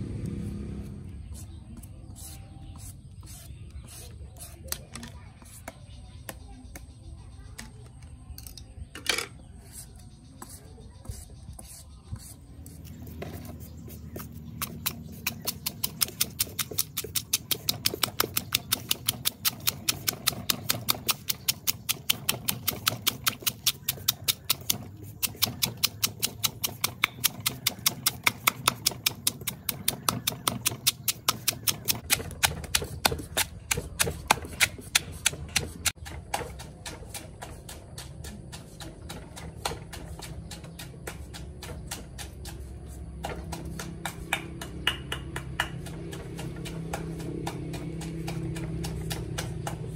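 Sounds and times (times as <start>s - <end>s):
wooden pestle pounding in mortar: 10.4s - 49.9s.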